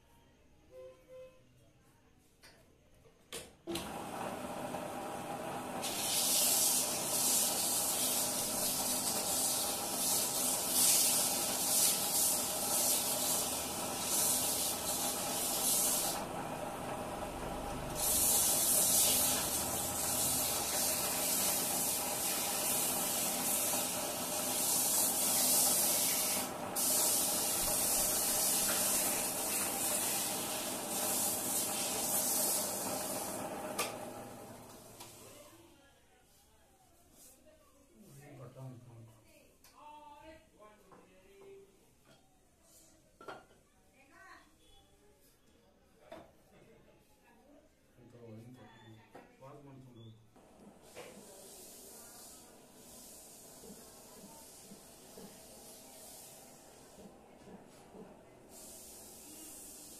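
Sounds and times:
sandpaper hissing on spinning wood: 0:05.8 - 0:16.3, 0:17.8 - 0:33.4, 0:50.8 - 0:56.9, 0:58.5 - 0:59.9
lathe humming: 0:06.6 - 0:34.9.

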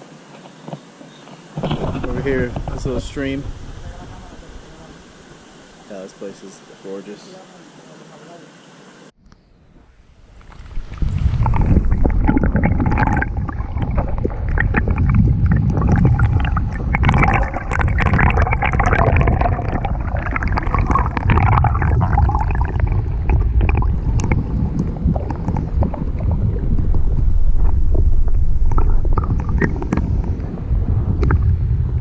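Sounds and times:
underwater stream rushing: 0:01.4 - 0:07.0, 0:10.2 - 0:32.0
small underwater clicks: 0:10.3 - 0:30.5.

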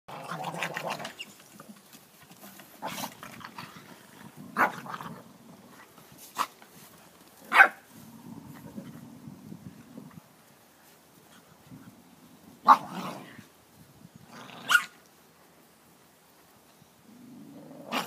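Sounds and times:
puppies barking: 0:07.5 - 0:07.8.

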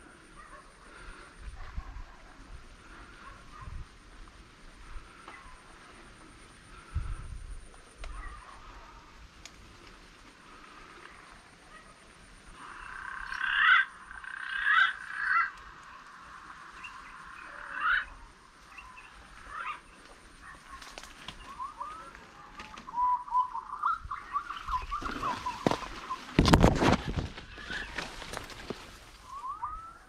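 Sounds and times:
rising animal calls: 0:11.6 - 0:26.4.

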